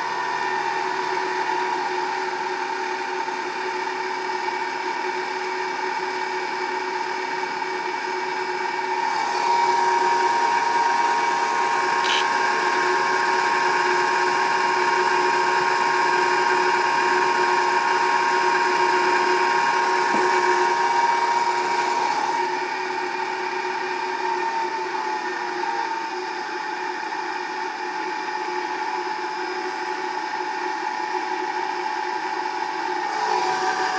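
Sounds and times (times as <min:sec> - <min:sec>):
electric motor hum and whine: 0:00.0 - 0:33.9
short click: 0:12.0 - 0:12.3.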